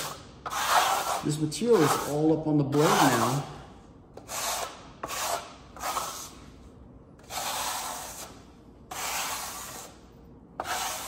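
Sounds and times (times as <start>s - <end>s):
trowel scraping wet plaster: 0.0s - 3.4s, 4.2s - 6.4s, 7.2s - 10.0s, 10.6s - 11.0s.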